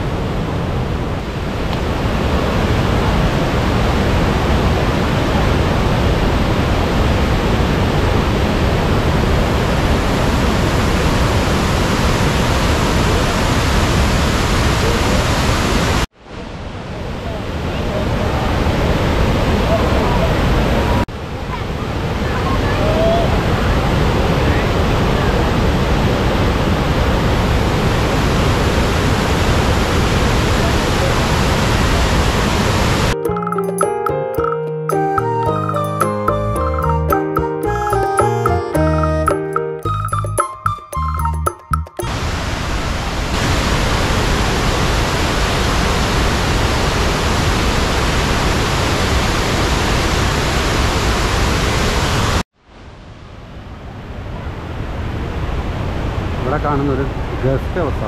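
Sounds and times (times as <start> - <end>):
waterfall roaring: 0.0 - 33.2, 42.0 - 52.4.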